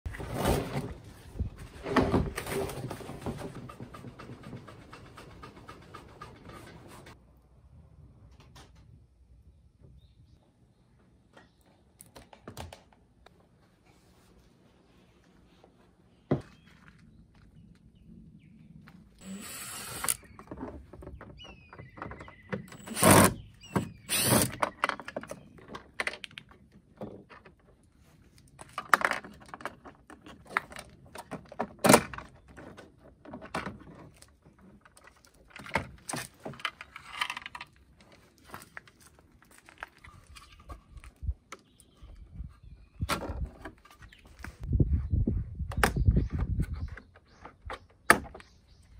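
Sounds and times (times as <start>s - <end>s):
cordless drill-driver running: 19.2s - 20.2s, 24.1s - 24.5s.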